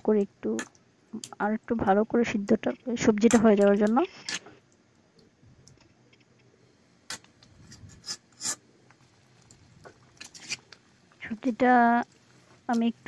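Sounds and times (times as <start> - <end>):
metal spatula scraping pan: 7.7 - 8.6, 10.2 - 10.7.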